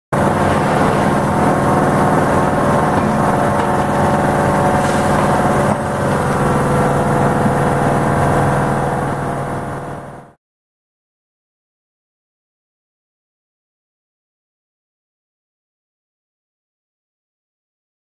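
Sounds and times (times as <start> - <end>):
vibratory feeder running: 0.2 - 10.3.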